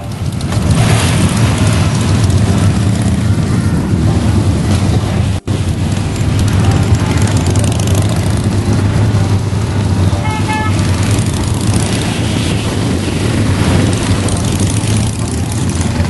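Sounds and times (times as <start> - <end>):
horn toots: 0.0 - 0.3, 9.1 - 11.2
motorcycle engines rumbling: 0.0 - 16.0.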